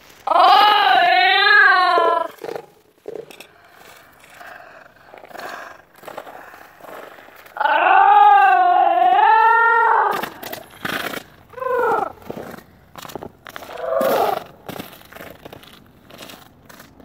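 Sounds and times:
falling cry: 0.2 - 2.4, 7.6 - 10.6, 11.5 - 12.2, 13.7 - 14.6
wavering howl: 13.7 - 14.5.

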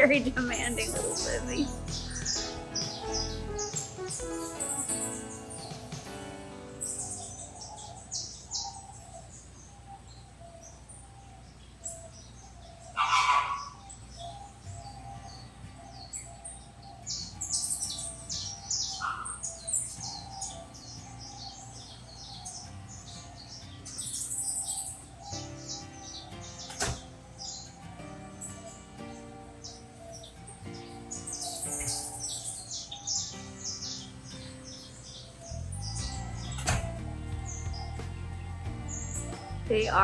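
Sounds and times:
small birds chirping: 0.0 - 40.0
loud low bird call: 12.8 - 15.6, 35.1 - 40.0.

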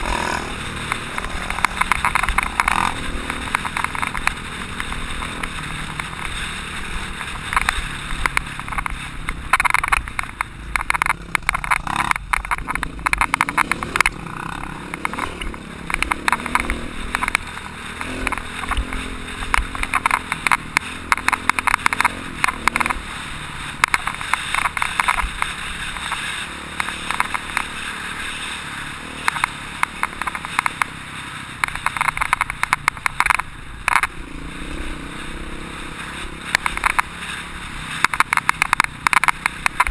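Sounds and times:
motorcycle engine running: 0.0 - 39.9
camera knocks and rattles: 7.5 - 14.1.

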